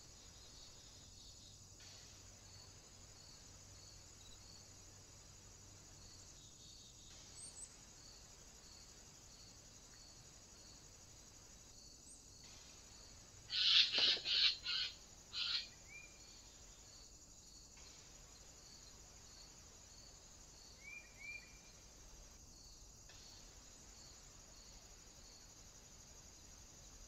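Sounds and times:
insects buzzing: 0:00.0 - 0:27.0
thin bird chirps: 0:13.5 - 0:16.2.

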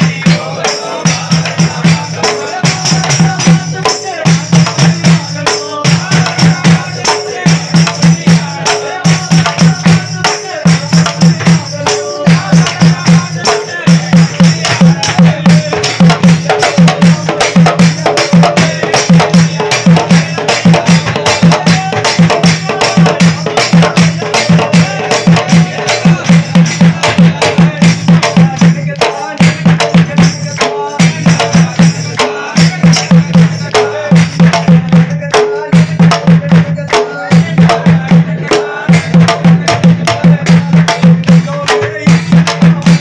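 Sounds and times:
drum beaten with a stick: 0:00.0 - 0:43.0
men singing: 0:00.0 - 0:43.0
hand clapping: 0:36.8 - 0:37.2.

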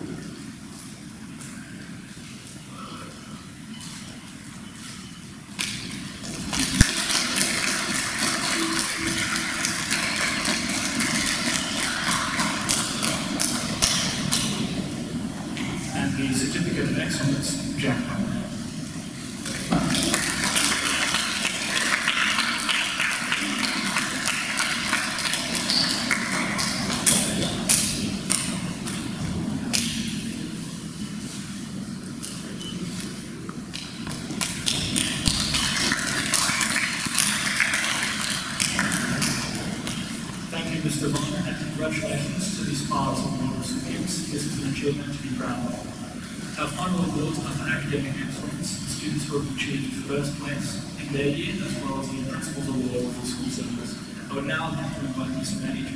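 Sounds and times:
audience applauding: 0:05.6 - 0:15.8, 0:19.3 - 0:30.2, 0:34.0 - 0:41.4.

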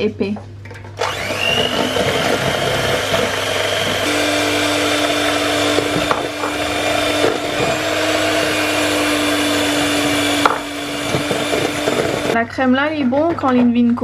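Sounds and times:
electric hand mixer whine: 0:01.0 - 0:12.4.

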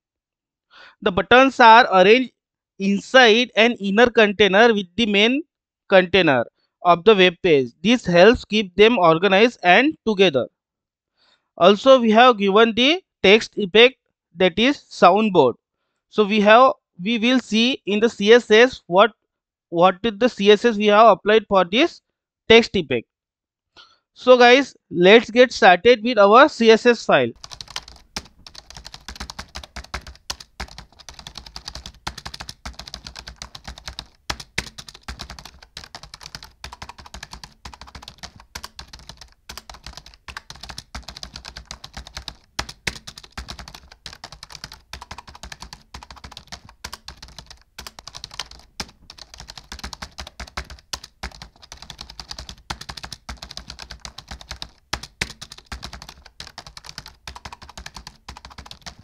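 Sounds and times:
fast keyboard typing: 0:27.4 - 0:59.0.

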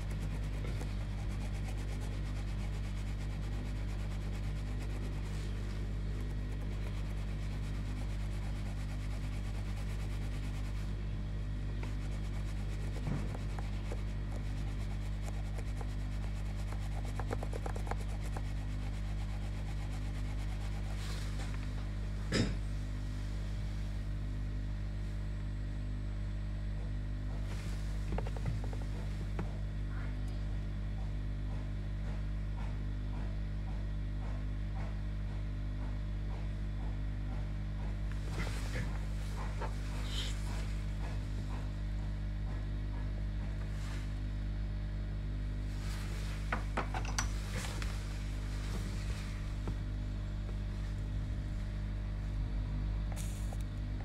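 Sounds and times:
cotton swab scrubbing circuit board: 0:00.0 - 0:11.0, 0:11.6 - 0:21.7
steady low hum: 0:00.0 - 0:54.0.

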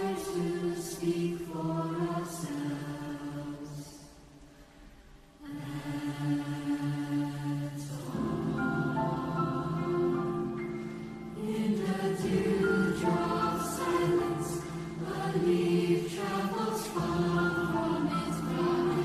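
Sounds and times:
choir singing chords: 0:00.0 - 0:19.0.

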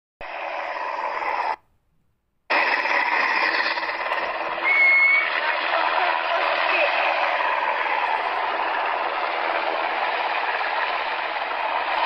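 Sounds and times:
helicopter noise: 0:02.5 - 0:12.0
short high whistle: 0:04.6 - 0:05.3.

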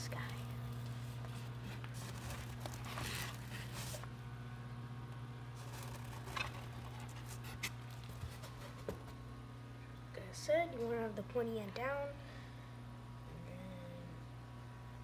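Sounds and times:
steady low hum: 0:00.0 - 0:15.0
rustling and scraping: 0:00.9 - 0:04.1, 0:05.6 - 0:09.2.

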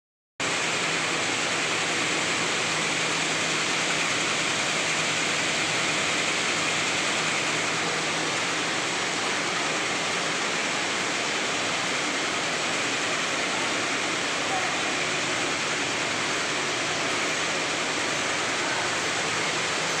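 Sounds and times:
slitting machine rushing noise: 0:00.4 - 0:20.0.

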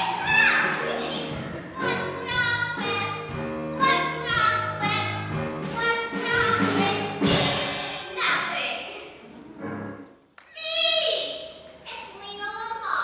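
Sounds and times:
girls singing a show tune: 0:00.0 - 0:07.4
musical accompaniment: 0:00.0 - 0:10.3.

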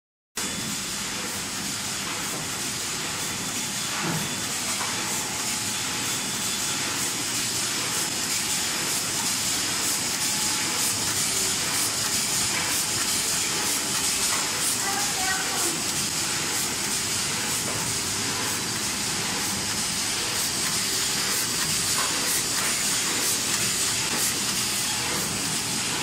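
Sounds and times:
machinery hissing: 0:08.7 - 0:26.0.

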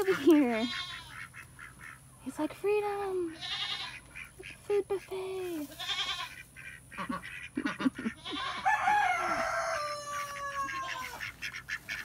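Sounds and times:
poultry clucking: 0:00.0 - 0:02.4, 0:03.0 - 0:12.0
rooster crowing: 0:08.3 - 0:11.2.

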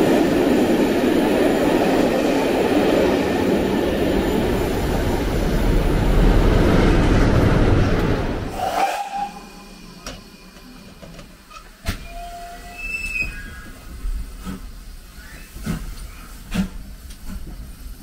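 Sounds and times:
steam locomotive rumbling: 0:00.0 - 0:18.0
wheels squealing on rails: 0:08.5 - 0:10.8, 0:11.4 - 0:14.0, 0:15.0 - 0:16.4.

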